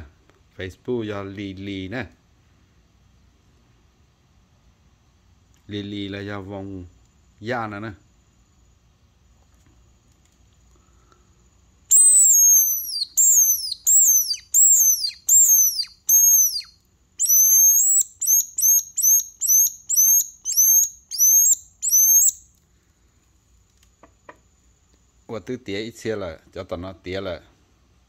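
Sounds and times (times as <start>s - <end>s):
bird-call whistle falling notes: 11.9s - 22.4s.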